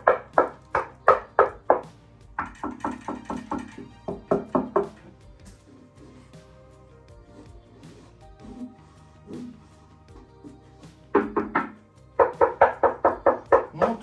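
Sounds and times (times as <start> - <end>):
knuckles knocking on speaker cabinet: 0.0 - 5.2, 11.2 - 14.0.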